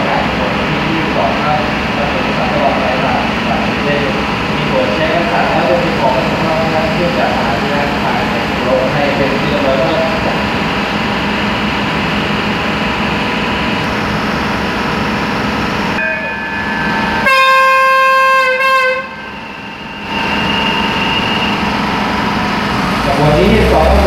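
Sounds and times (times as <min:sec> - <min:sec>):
train engine rumble: 0:00.0 - 0:24.0
train horn blast: 0:17.2 - 0:19.4.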